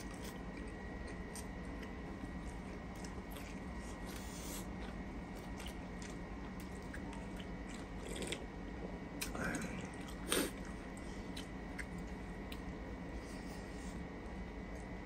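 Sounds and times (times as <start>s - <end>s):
people chewing: 0.0s - 8.4s
faint background hum: 0.0s - 15.0s.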